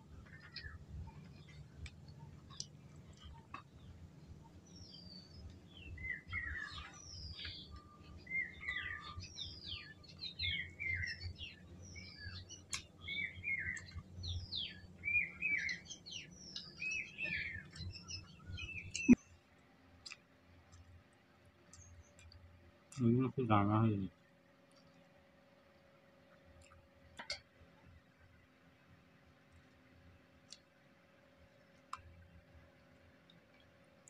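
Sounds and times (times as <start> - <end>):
bird calling: 2.5 - 19.2.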